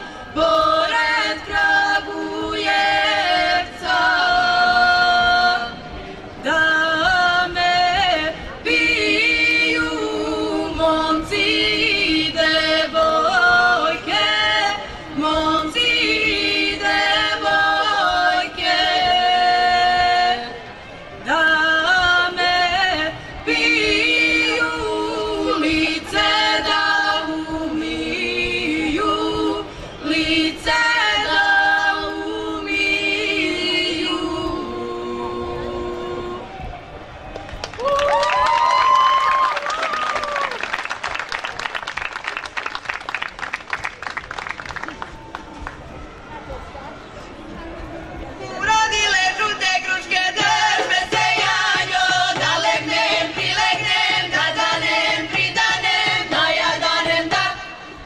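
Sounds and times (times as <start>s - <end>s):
women singing a cappella: 0.0s - 36.6s, 48.5s - 58.0s.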